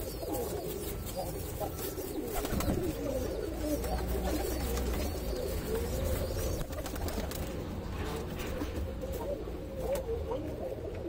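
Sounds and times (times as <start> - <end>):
pigeons cooing: 0.0 - 11.0
wing flutters: 2.2 - 3.0, 6.5 - 7.6.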